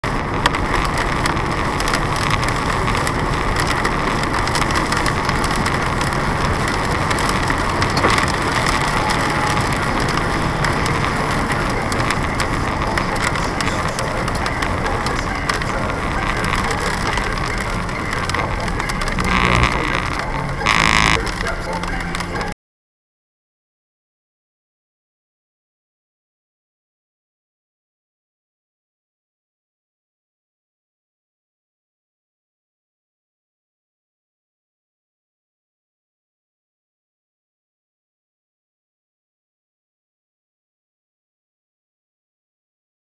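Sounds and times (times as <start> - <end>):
tyre noise on wet road: 0.0 - 22.6
rain spattering on windshield: 0.1 - 22.5.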